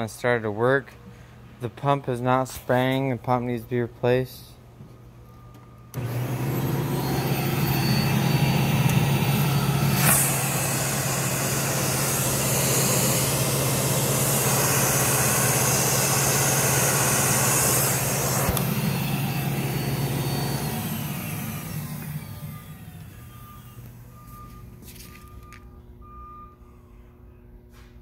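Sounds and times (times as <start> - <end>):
vacuum motor humming: 5.9 - 24.3.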